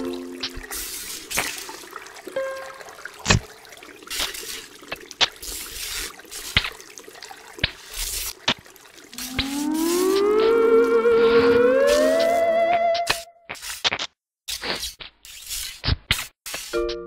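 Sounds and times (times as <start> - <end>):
water dripping and trickling: 0.0 - 13.2
rising electronic tone: 9.2 - 13.4.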